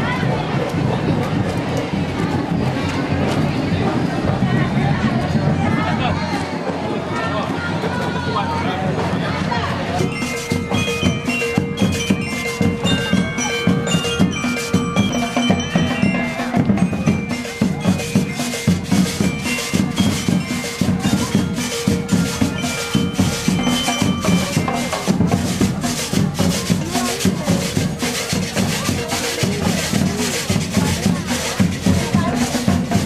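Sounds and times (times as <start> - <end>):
snare and bass drums marching: 0.0 - 33.0
high ringing melody: 9.9 - 29.4.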